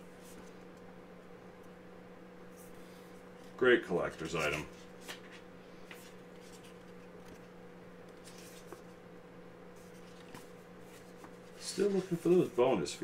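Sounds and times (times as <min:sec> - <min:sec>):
steady low hum: 0:00.0 - 0:13.0
paper booklet rustling: 0:03.4 - 0:09.0, 0:09.8 - 0:13.0
soft scrapes: 0:09.8 - 0:12.7.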